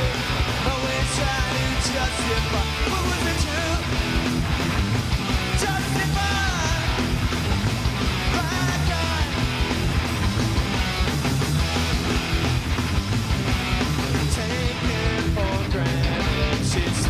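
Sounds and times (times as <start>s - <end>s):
man singing and shouting: 0.0s - 4.2s, 5.4s - 7.2s, 8.2s - 9.6s, 14.1s - 17.0s
drums: 0.0s - 17.0s
electric guitars: 0.0s - 17.0s.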